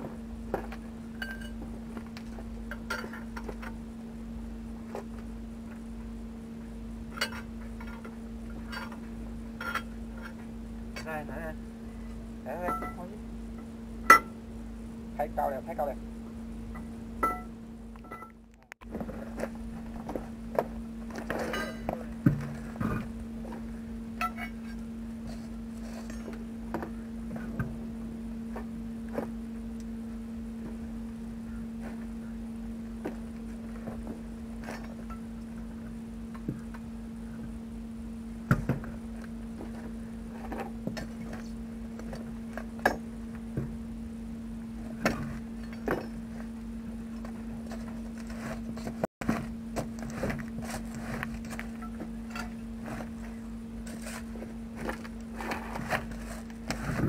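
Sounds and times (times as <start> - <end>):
steady low hum: 0.0 - 57.0
clanks and knocks of tools: 2.7 - 3.8, 9.6 - 10.4.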